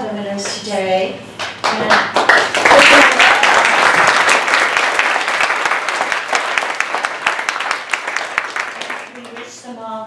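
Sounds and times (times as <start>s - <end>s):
audience applauding: 1.6s - 9.5s.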